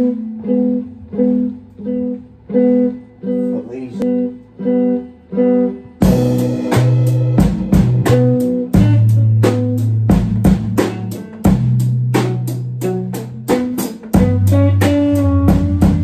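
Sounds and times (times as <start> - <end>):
bass guitar notes: 0.0 - 16.0
electric guitar riff: 0.0 - 16.0
drum kit beat: 4.1 - 16.0.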